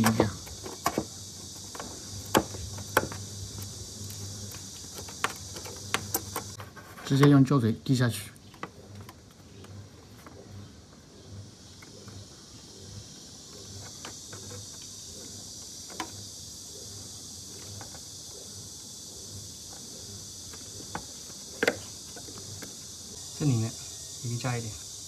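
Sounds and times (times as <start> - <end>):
high-pitched insect chirring: 0.0 - 6.6, 11.2 - 25.0.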